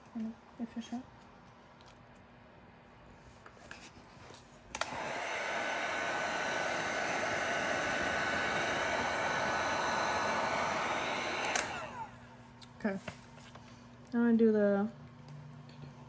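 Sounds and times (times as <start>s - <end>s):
heat gun blowing: 4.7s - 12.2s
heat gun switch click: 11.3s - 12.0s.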